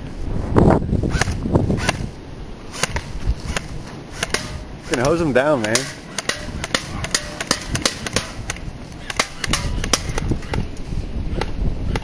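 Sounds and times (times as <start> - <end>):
airsoft gun rapid shots: 2.7 - 10.3.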